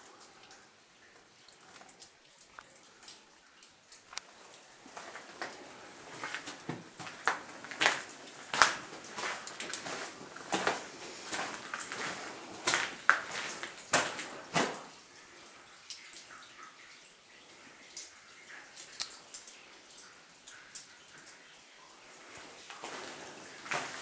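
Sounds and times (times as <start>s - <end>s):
water dripping: 0.0s - 24.0s
footsteps in tunnel: 4.8s - 15.0s, 22.7s - 24.0s.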